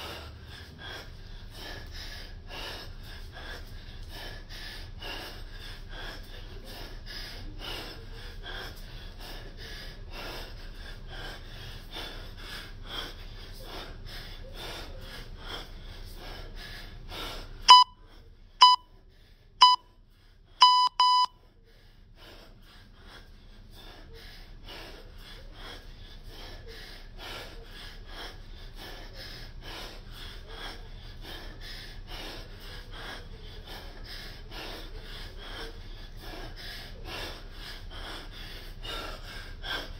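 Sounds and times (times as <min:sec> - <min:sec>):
man breathing hard: 0:00.0 - 0:39.9
timer beeps: 0:17.7 - 0:18.0, 0:18.6 - 0:18.9, 0:19.6 - 0:19.9, 0:20.6 - 0:21.4.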